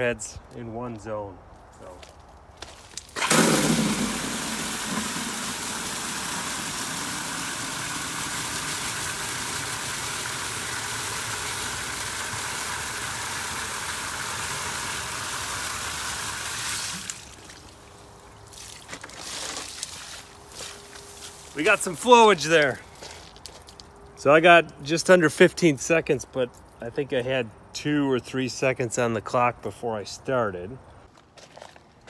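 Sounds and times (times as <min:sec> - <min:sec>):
water gushing into plastic bucket: 0:03.2 - 0:17.6.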